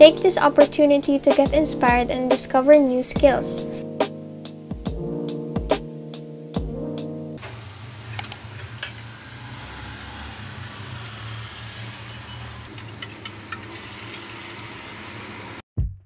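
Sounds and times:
stove hiss and hum: 12.6 - 15.6
butter sizzling in pan: 12.7 - 15.6
egg poured into pan: 12.7 - 15.6.

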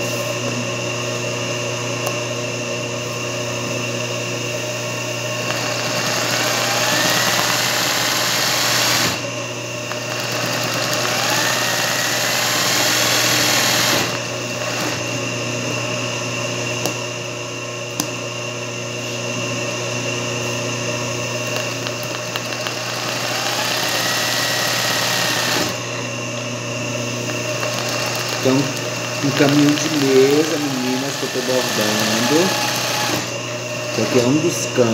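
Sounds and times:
sewing machine running: 5.4 - 9.3, 9.9 - 15.1, 21.5 - 25.9, 27.3 - 33.3
sewing machine motor humming: 5.4 - 15.2, 21.4 - 26.0, 27.1 - 34.4.

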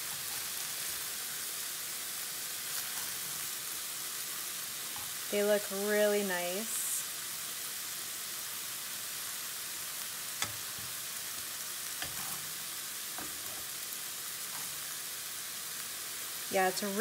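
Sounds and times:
chicken sizzling in oil: 0.0 - 17.0
metal tongs clicking on pan: 10.4 - 10.8.

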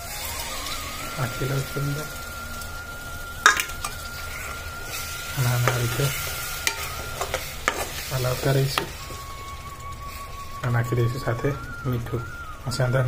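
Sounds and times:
onion masala sizzling: 0.0 - 13.0
spatula stirring in a pan: 3.4 - 9.5.

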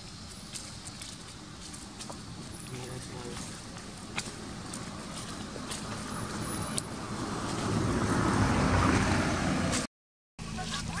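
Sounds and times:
car driving past: 5.2 - 9.9.

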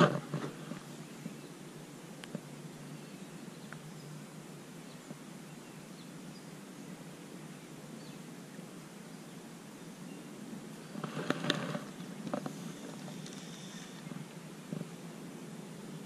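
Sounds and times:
faint outdoor background hiss: 0.0 - 16.0
faint bird chirps: 2.8 - 11.2, 11.8 - 14.3.

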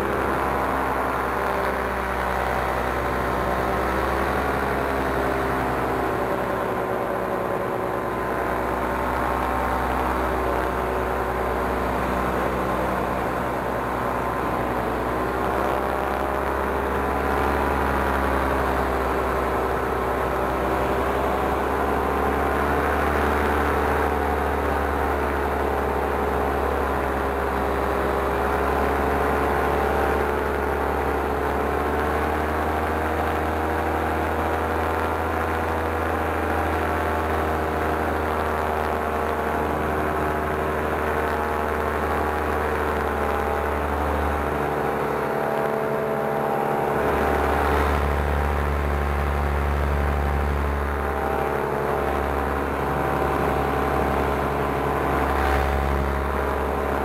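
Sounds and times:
paramotor engine and propeller: 0.0 - 57.0
deep low rumble: 42.9 - 57.0.

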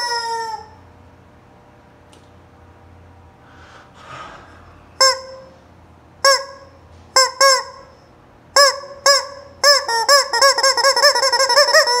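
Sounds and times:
rubber chicken toy squawking: 0.0 - 0.8, 5.0 - 5.5, 6.2 - 7.9, 8.6 - 12.0.

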